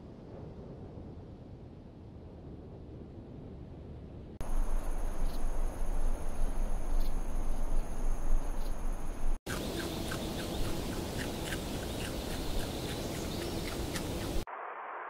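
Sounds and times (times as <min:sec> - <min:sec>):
low rumble: 0:00.0 - 0:09.4
steady hum: 0:04.4 - 0:14.5
rapid repeated animal calls: 0:09.5 - 0:14.5.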